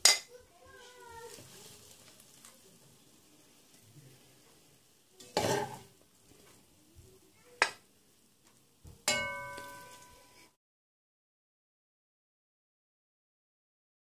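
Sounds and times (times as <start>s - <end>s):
metal spoon scraping pot: 5.2s - 6.0s
spoon clinking on plate: 9.1s - 10.3s.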